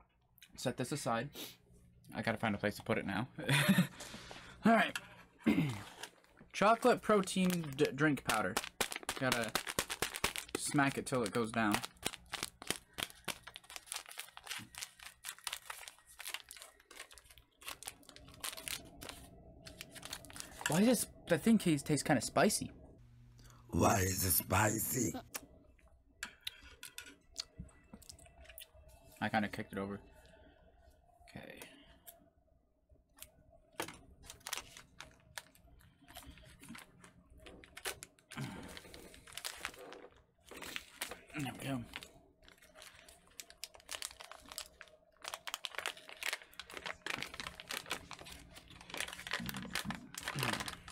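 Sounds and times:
plastic pouch crinkling and tearing: 5.8s - 20.8s, 33.8s - 50.9s.

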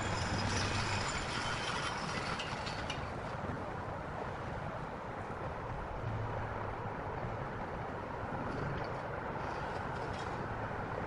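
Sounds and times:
rattling clatter: 0.0s - 3.4s
traffic: 0.0s - 11.0s.

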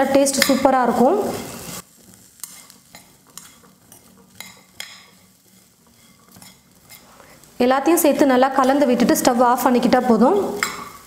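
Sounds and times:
metal spatula scraping pan: 0.2s - 7.4s, 8.2s - 11.0s.

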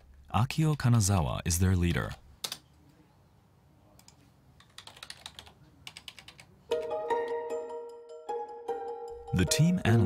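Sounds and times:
typing on keyboard: 4.0s - 6.5s
music with steady tones: 6.7s - 10.0s.

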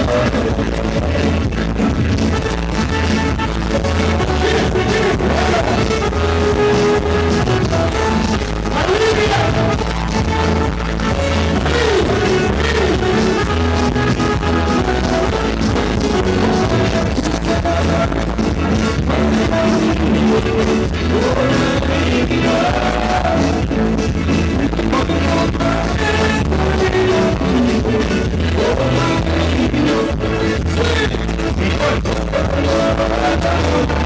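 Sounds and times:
live dance band: 0.0s - 34.0s
pulsing bass beat: 0.0s - 34.0s.

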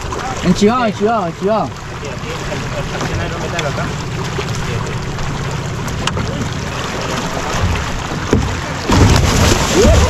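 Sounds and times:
fish thrashing and splashing: 3.9s - 10.0s.

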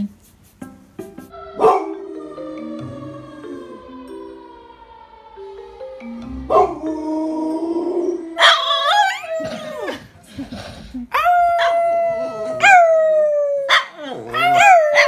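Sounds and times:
dogs howling: 1.4s - 5.4s, 6.5s - 10.0s, 11.2s - 15.0s
dog yelp: 8.4s - 9.9s, 13.7s - 15.0s.

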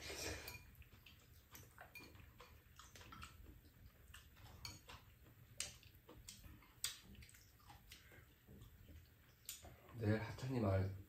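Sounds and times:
chopsticks clicking against bowls: 0.4s - 8.1s.

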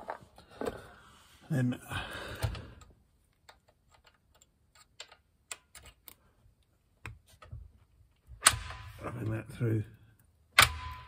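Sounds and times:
metal parts clicking and tapping: 3.3s - 6.2s.

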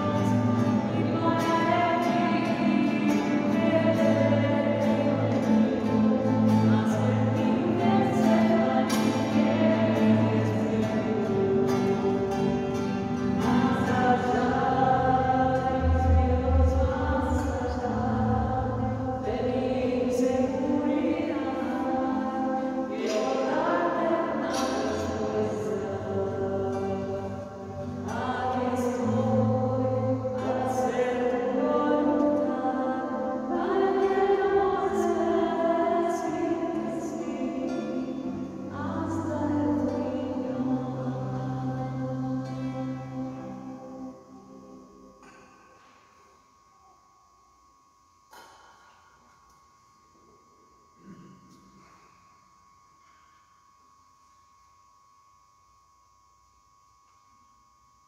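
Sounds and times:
choir singing a hymn: 0.0s - 45.4s.

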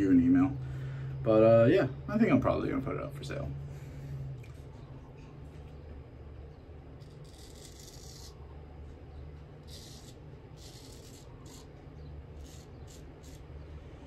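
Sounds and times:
low steady hum: 0.0s - 14.0s
razor scraping stubble: 7.0s - 8.5s, 9.4s - 13.8s.

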